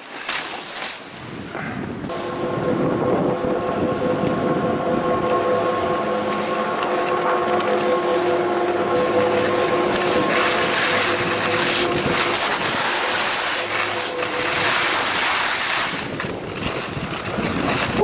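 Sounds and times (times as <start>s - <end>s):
skis hissing over snow: 0.0s - 1.6s, 9.1s - 18.0s
wind on microphone: 1.0s - 18.0s.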